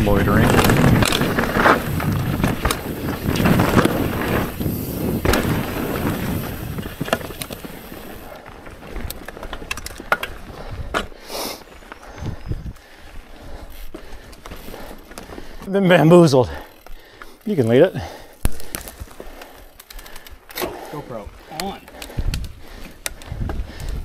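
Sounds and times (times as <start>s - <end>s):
bike knocks and rattles: 0.0s - 11.2s
bike tyres crunching on dirt: 0.0s - 24.0s.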